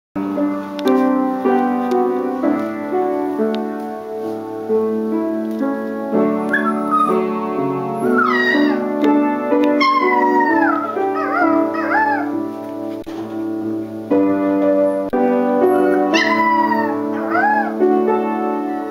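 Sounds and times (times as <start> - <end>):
piano melody: 0.2 - 18.9
puppy howling: 6.4 - 7.3, 8.0 - 8.8, 9.8 - 12.4, 15.7 - 17.8.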